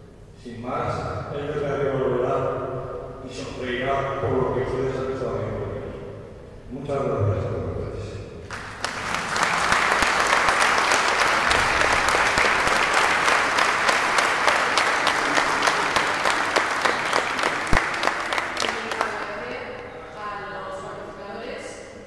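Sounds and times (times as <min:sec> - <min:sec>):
audience applauding: 0:08.5 - 0:19.9.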